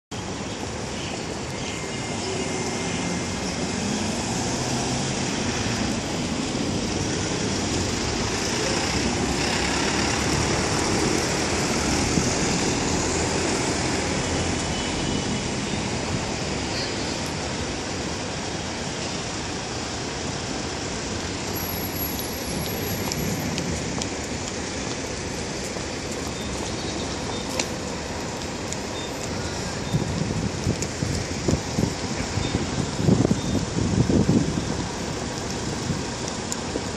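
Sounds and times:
road traffic: 0.1s - 36.9s.

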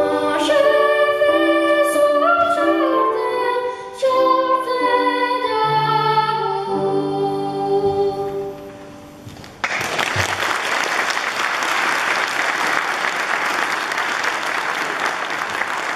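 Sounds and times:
boy singing: 0.0s - 8.6s
piano: 0.0s - 15.9s
audience applause: 9.6s - 15.9s.

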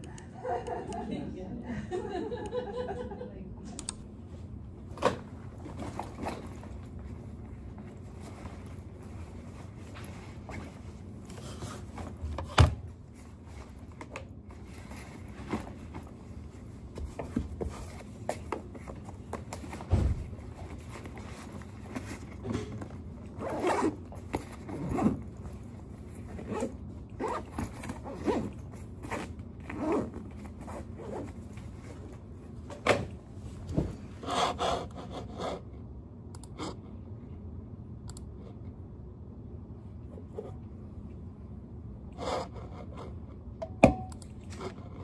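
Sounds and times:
backpack zipper being pulled: 23.4s - 24.0s, 24.6s - 25.2s, 26.4s - 31.2s.

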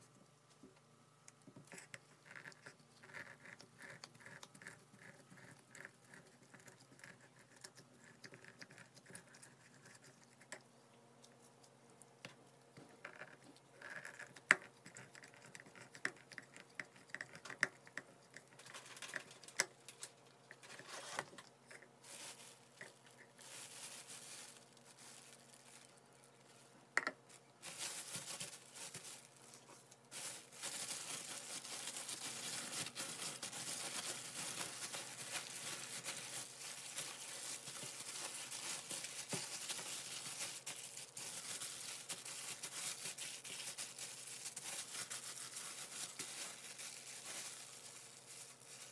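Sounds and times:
plastic bag rustling: 18.6s - 48.9s.

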